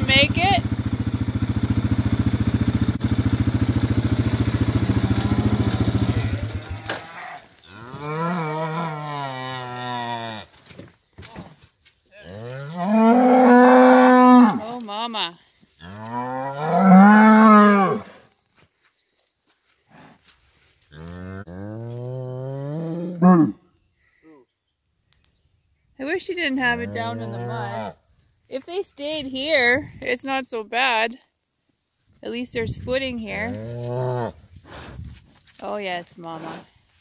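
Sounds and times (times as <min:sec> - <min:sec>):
engine idling: 0:00.0 - 0:07.0
cow mooing: 0:04.9 - 0:10.5, 0:12.2 - 0:14.8, 0:15.8 - 0:18.1, 0:20.9 - 0:23.6, 0:26.7 - 0:28.0.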